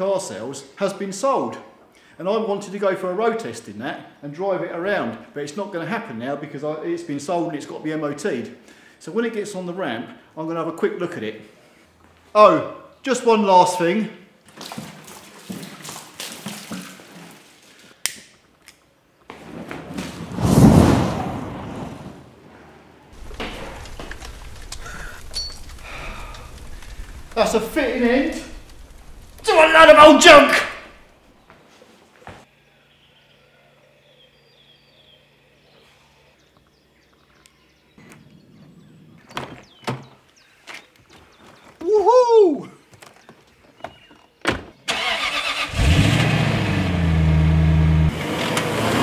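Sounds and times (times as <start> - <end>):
liquid splashing on metal: 14.5 - 17.9
low rumble: 23.2 - 29.5
bird chirps: 32.5 - 41.8.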